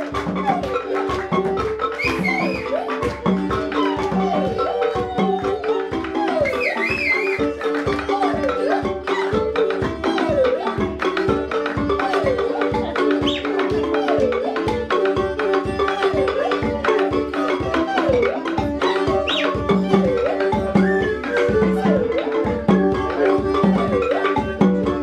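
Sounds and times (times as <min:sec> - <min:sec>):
drums quick beat: 0:00.0 - 0:25.0
sliding melody notes: 0:00.0 - 0:25.0.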